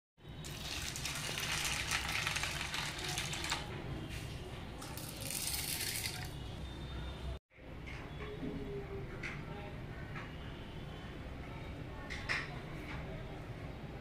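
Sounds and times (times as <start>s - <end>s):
water pouring into steel bowl: 0.4s - 3.7s, 4.8s - 6.4s.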